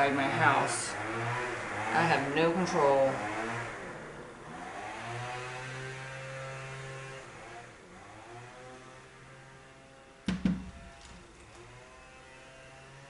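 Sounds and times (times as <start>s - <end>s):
sharp knocks: 10.3s - 11.4s.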